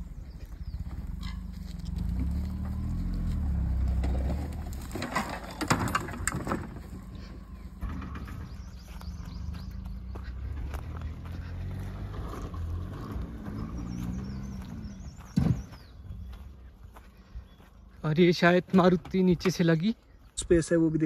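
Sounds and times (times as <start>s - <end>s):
car engine revving: 0.0s - 5.0s, 7.2s - 15.9s.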